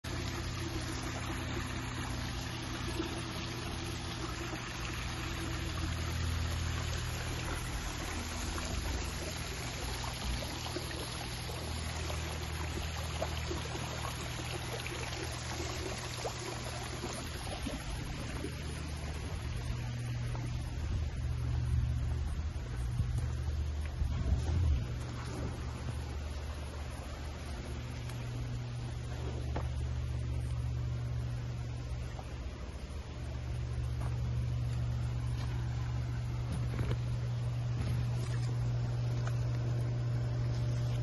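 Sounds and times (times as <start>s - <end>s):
low steady hum: 0.0s - 41.0s
small waterfall splashing: 0.1s - 20.5s.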